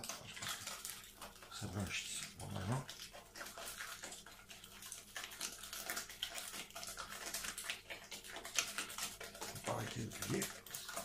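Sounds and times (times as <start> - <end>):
spoon scraping a mixing bowl: 0.0 - 11.0.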